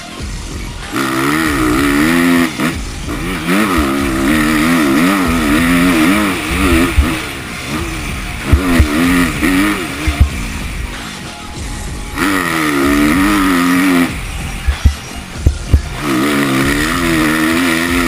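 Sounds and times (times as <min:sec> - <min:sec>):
motocross bike engine revving: 0:00.0 - 0:18.0
short low thumps: 0:02.8 - 0:07.2, 0:07.8 - 0:11.0, 0:11.6 - 0:16.8.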